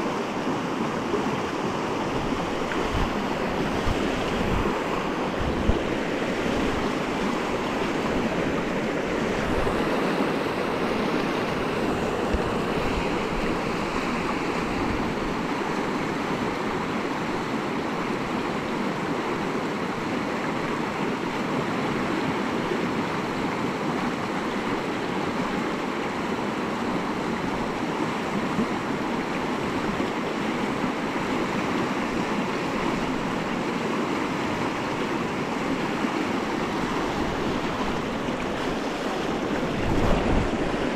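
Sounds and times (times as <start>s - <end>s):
river rapids rushing: 0.0s - 40.9s
wind buffeting microphone: 1.6s - 15.4s, 36.4s - 40.9s.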